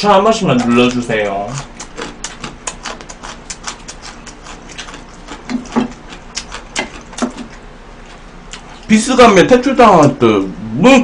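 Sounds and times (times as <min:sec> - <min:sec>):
muffled hum through food: 0:00.0 - 0:11.0
wet chewing smacks: 0:00.3 - 0:08.9.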